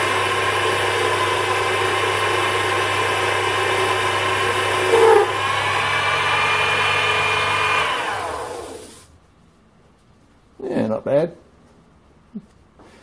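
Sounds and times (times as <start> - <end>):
lathe motor whining: 0.0 - 9.1
motor spinning down: 0.2 - 9.1
cutting tool squeal: 4.8 - 5.4.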